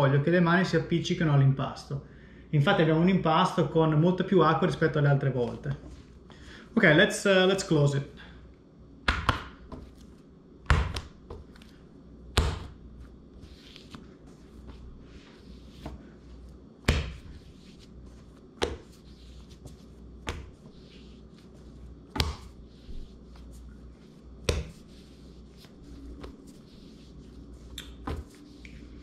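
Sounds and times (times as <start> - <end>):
dough slapping on counter: 9.0 - 11.6, 12.3 - 13.0, 16.8 - 23.8, 24.4 - 28.8.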